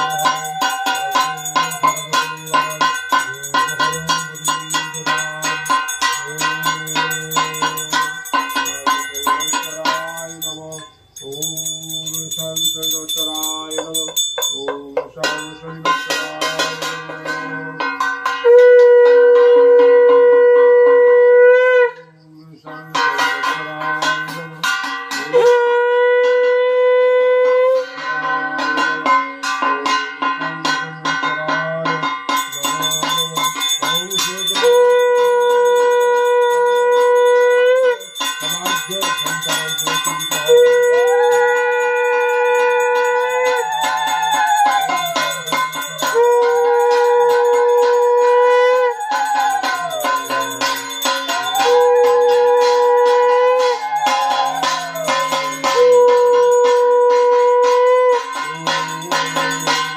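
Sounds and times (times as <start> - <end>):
handbell ringing rapidly: 0.0 - 18.5, 27.9 - 59.9
conch shell blown: 0.0 - 59.9.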